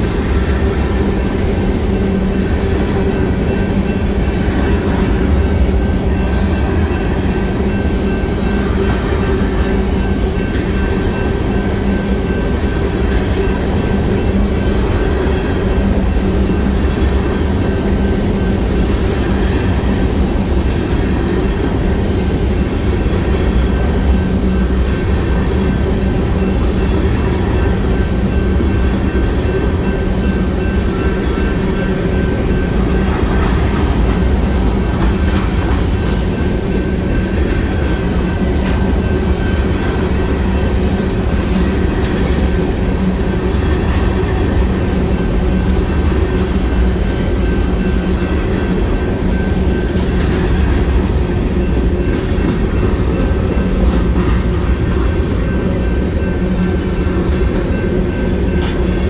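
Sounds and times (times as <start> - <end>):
train wheels rumbling on rail: 0.0 - 59.0
wheels clacking over rail joints: 2.0 - 59.0.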